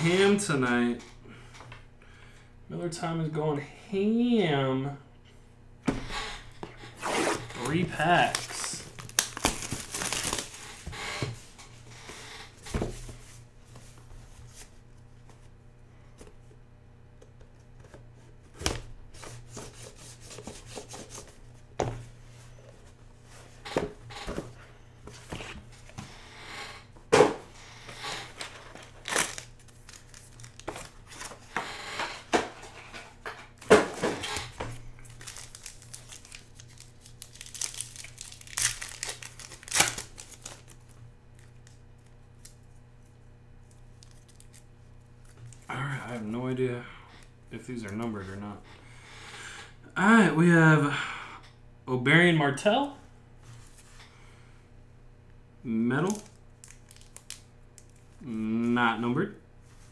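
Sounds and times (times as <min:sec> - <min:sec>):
card pack wrappers crinkling and tearing: 0:07.5 - 0:10.9, 0:28.1 - 0:31.4, 0:33.6 - 0:42.8, 0:43.6 - 0:46.2, 0:56.0 - 0:58.2.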